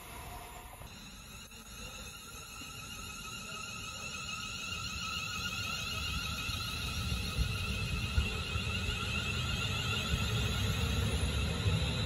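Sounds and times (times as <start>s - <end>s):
high electric whine of train: 0.0s - 12.0s
wheels rumbling on rail: 5.8s - 12.0s.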